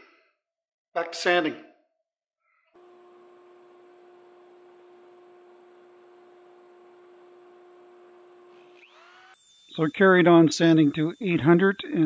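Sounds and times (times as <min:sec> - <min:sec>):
lathe motor hum: 0:02.8 - 0:12.0.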